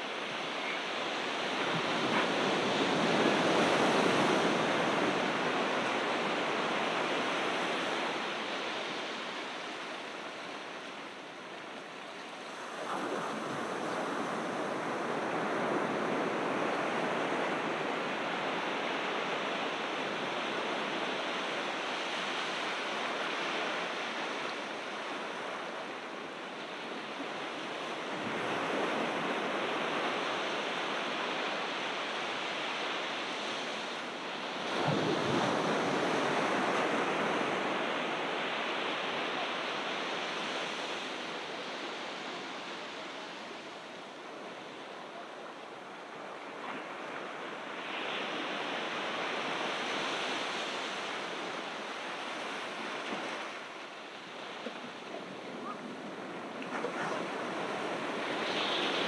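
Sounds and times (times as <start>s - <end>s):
ocean surf on beach: 0.0s - 59.0s.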